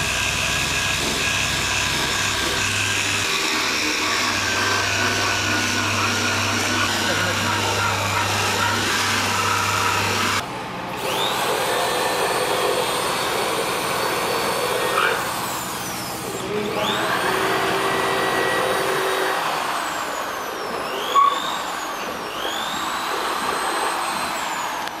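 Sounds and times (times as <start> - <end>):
electric polisher motor whine: 1.9 - 10.4, 13.6 - 25.0
polishing pad grinding on metal: 2.4 - 10.4.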